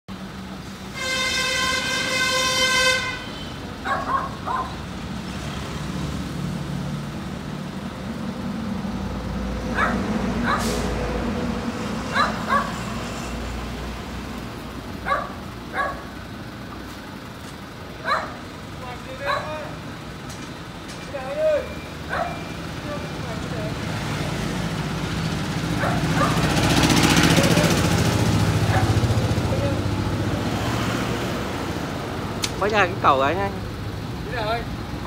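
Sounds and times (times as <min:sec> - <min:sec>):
vehicle horn: 0:00.9 - 0:03.6
truck engine running: 0:03.4 - 0:30.6
dog barking: 0:03.8 - 0:04.8, 0:09.7 - 0:10.7, 0:12.1 - 0:12.8, 0:15.0 - 0:16.2, 0:18.0 - 0:18.4, 0:19.2 - 0:19.7, 0:22.1 - 0:22.5, 0:25.8 - 0:26.5, 0:28.6 - 0:29.0.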